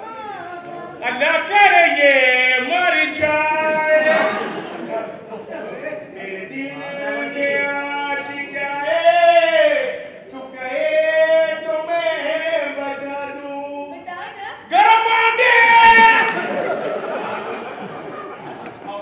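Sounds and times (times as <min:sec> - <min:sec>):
loud voice: 0:13.9 - 0:16.6.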